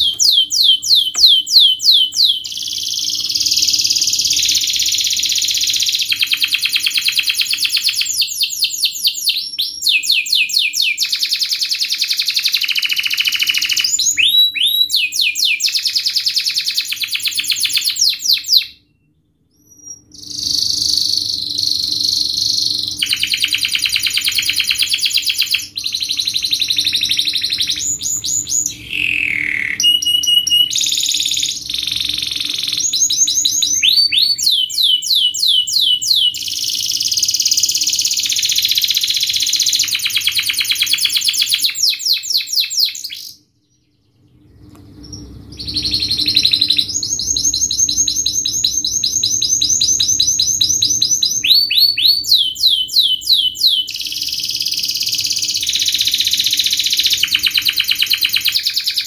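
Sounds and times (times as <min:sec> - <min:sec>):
canary singing: 0:00.0 - 0:59.0.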